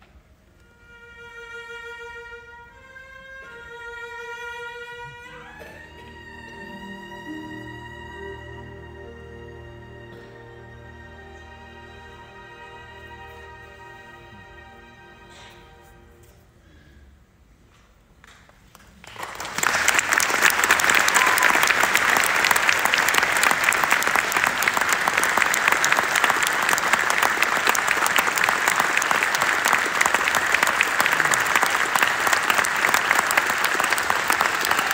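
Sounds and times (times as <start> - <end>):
audience applauding: 18.7 - 34.9.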